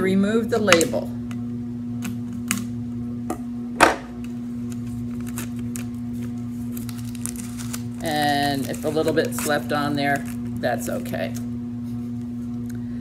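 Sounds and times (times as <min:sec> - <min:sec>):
steady low hum: 0:00.0 - 0:13.0
label crinkling: 0:04.6 - 0:11.5
scissors cutting plastic label: 0:04.7 - 0:06.0, 0:06.7 - 0:11.4.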